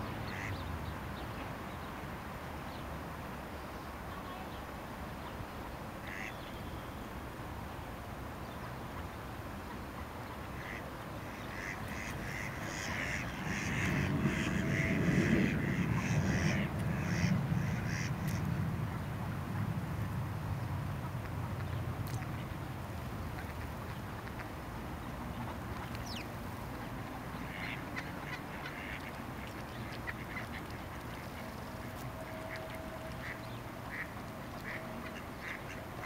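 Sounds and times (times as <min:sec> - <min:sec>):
ducks quacking: 0:00.3 - 0:00.5, 0:06.0 - 0:06.4, 0:10.6 - 0:18.4, 0:27.4 - 0:36.0.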